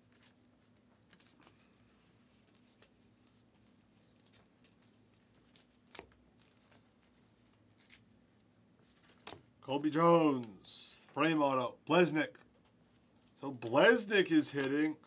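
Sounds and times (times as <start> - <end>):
trading cards flipped by hand: 4.2 - 8.1.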